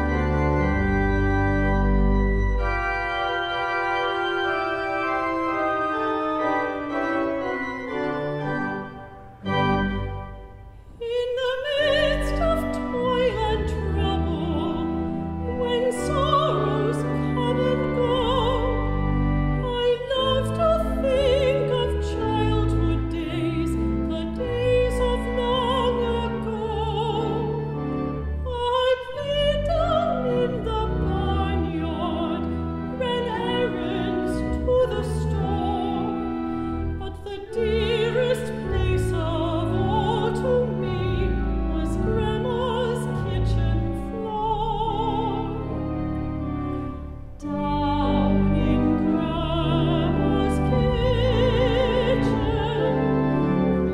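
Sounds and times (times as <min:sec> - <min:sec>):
sustained organ chords: 0:00.0 - 0:11.0, 0:11.6 - 0:53.9
woman singing with vibrato: 0:10.9 - 0:18.8, 0:19.6 - 0:27.6, 0:28.4 - 0:36.2, 0:37.0 - 0:45.6, 0:47.4 - 0:53.1.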